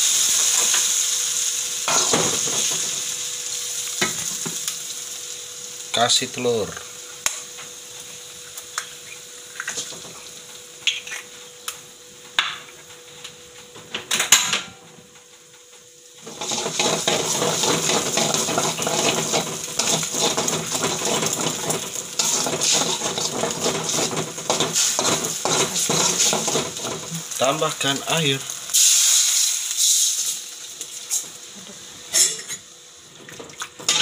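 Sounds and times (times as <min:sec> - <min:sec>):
egg sizzling in hot oil: 0:00.0 - 0:06.0, 0:06.6 - 0:11.8, 0:16.0 - 0:34.0
spatula scraping wok: 0:16.2 - 0:27.2.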